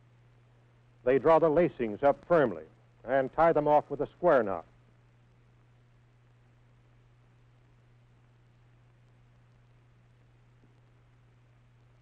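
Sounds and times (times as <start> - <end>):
faint steady hiss: 0.0 - 12.0
low even hum: 0.0 - 12.0.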